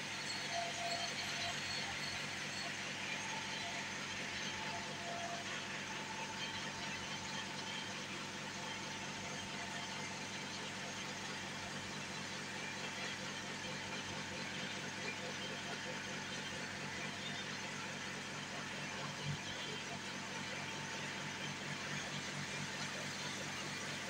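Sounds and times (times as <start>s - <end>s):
machine mechanical hum: 0.0s - 24.0s.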